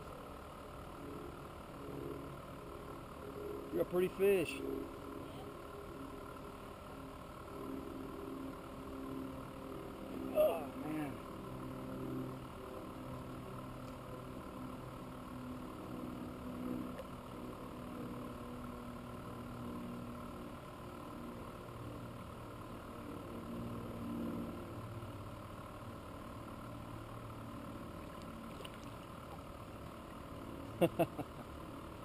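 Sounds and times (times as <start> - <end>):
low engine hum: 0.0 - 32.0.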